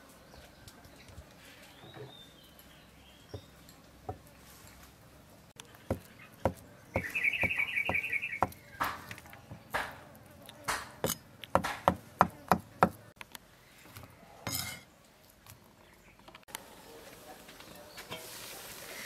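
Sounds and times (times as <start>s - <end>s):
cleaver chopping on wooden block: 5.9s - 10.0s, 10.7s - 13.1s
high chirping trill: 7.0s - 8.6s.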